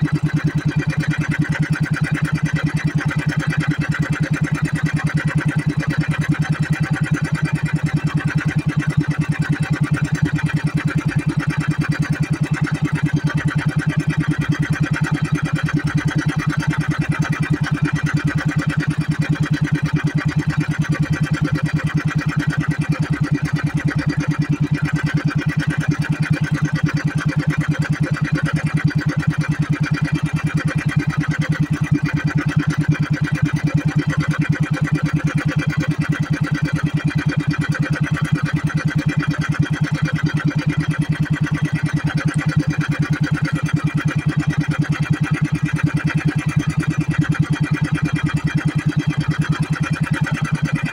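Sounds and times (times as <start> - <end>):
boat engine chugging: 0.0 - 50.9.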